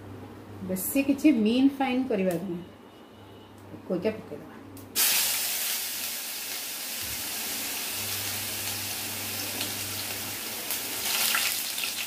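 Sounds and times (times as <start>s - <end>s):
onion sizzling in hot oil: 5.0s - 12.0s.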